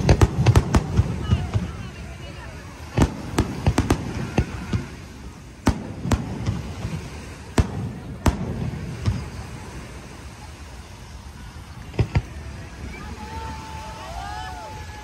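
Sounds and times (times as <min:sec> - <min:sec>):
firework shells bursting: 0:02.9 - 0:09.6.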